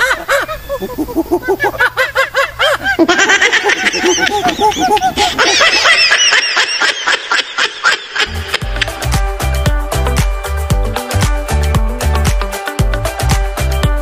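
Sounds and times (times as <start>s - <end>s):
cartoonish voices giggling: 0.0s - 9.0s.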